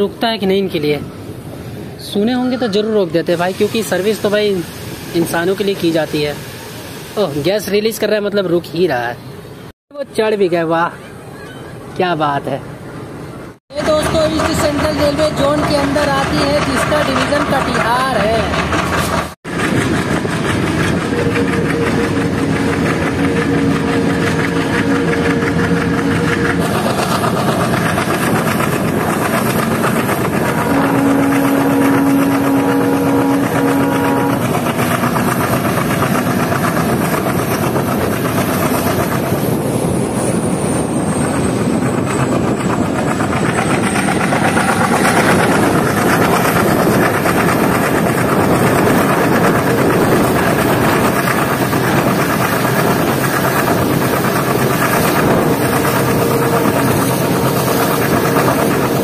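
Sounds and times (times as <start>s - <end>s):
rushing wind: 0.0s - 7.6s, 12.6s - 59.0s
diesel locomotive engine: 0.0s - 59.0s
wheels rumbling on rail: 0.0s - 59.0s
steady tones: 14.0s - 38.8s, 41.5s - 59.0s.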